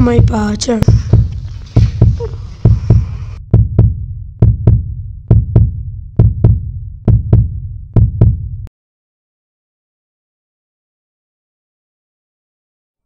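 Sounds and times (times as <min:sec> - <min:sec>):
heartbeat thumps: 0:00.0 - 0:08.7.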